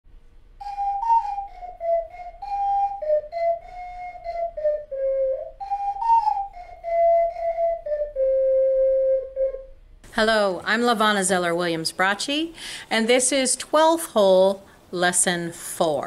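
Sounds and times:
ocarina melody: 0.6 - 9.8
breath puffs: 12.6 - 12.9.

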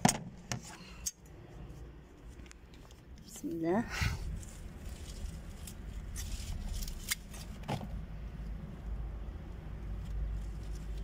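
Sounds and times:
steady low rumble: 1.2 - 11.0
plant stems snipped: 5.1 - 7.6.

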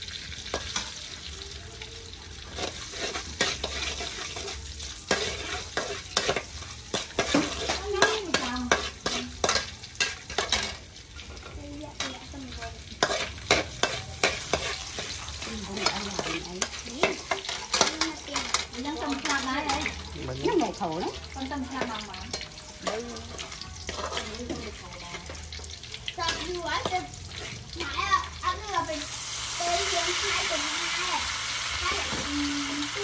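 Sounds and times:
garlic sizzling in hot oil: 0.0 - 33.0
metal spatula scraping a wok: 2.4 - 20.0, 21.7 - 27.8.

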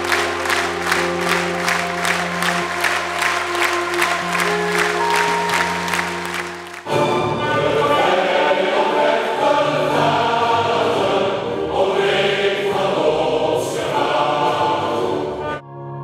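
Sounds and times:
steady held chord: 0.0 - 8.8
choir singing an anthem: 0.0 - 15.6
musical accompaniment: 0.0 - 16.0.

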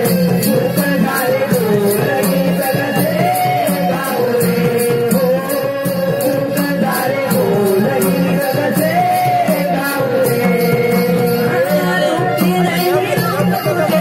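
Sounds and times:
hand drum playing: 0.0 - 14.0
small cymbals keeping beat: 0.0 - 14.0.

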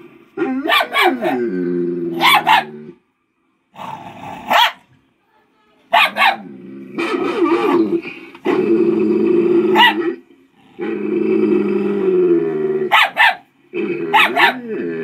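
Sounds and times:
puppy barking: 0.7 - 1.3, 2.2 - 2.7, 4.5 - 4.9, 5.9 - 6.4, 9.8 - 10.1, 12.9 - 13.5, 14.1 - 14.6
puppy growling: 6.1 - 15.0.

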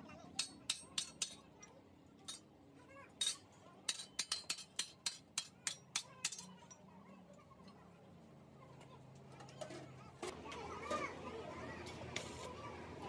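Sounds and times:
hammer striking steel: 0.4 - 1.4, 3.2 - 6.5.

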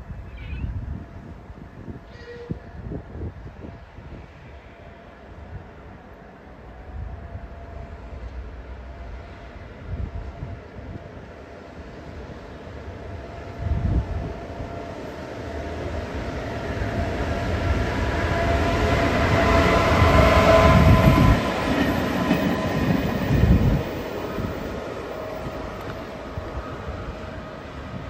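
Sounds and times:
locomotive whine: 0.8 - 28.0
train wheels on rails: 6.1 - 28.0.

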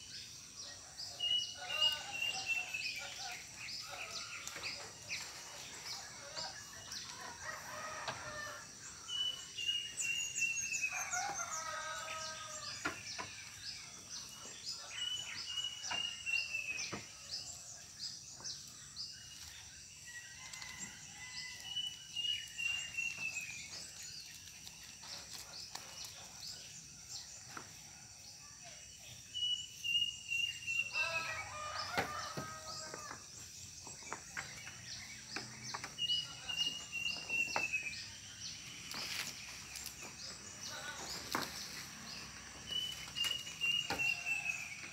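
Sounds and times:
rooster crowing: 10.9 - 12.8, 30.9 - 33.2.

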